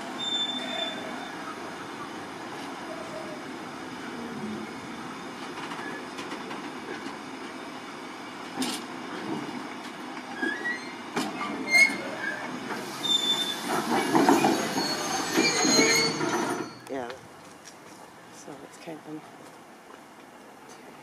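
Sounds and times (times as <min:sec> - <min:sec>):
wheels squealing: 0:00.0 - 0:03.6, 0:05.6 - 0:06.2, 0:10.3 - 0:16.9
freight train wheels rattling: 0:08.4 - 0:17.0.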